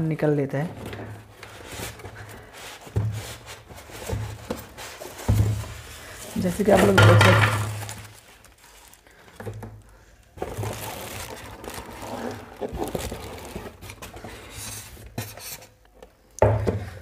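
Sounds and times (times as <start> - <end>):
plastic bag crinkling: 0.8 - 15.0
foam pieces rubbing: 1.2 - 9.2, 10.4 - 15.8.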